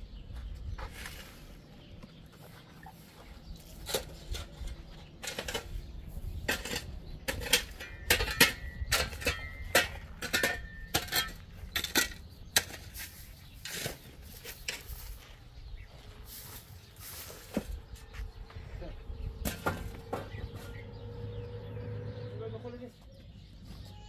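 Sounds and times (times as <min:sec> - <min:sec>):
shovel scraping gravelly rubble: 0:00.8 - 0:01.7, 0:03.6 - 0:15.3.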